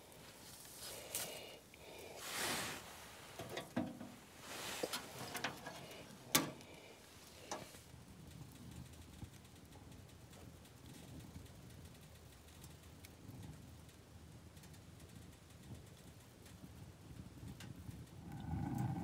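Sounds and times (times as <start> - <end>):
metal stove door clanking shut: 3.4 - 4.2, 4.9 - 6.6.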